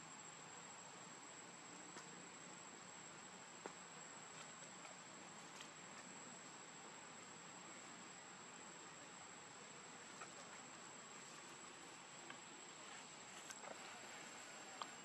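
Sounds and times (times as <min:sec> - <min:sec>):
faint hiss: 0:00.0 - 0:15.0
faint clicks: 0:01.9 - 0:02.2, 0:10.0 - 0:10.6, 0:11.2 - 0:14.0.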